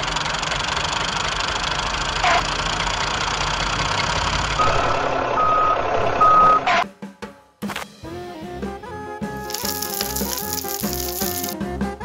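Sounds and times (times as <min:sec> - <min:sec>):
vehicle engine running: 0:00.0 - 0:06.6
reversing beeps: 0:04.6 - 0:06.8.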